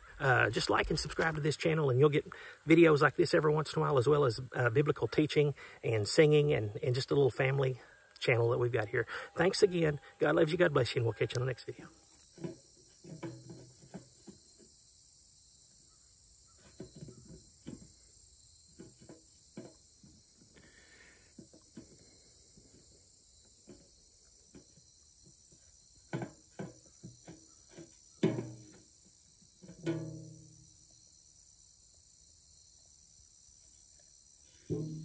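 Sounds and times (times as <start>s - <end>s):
crickets chirring: 0.0s - 35.0s
rubber ball knocking metal pan: 28.2s - 28.7s, 29.6s - 30.6s, 34.7s - 35.0s.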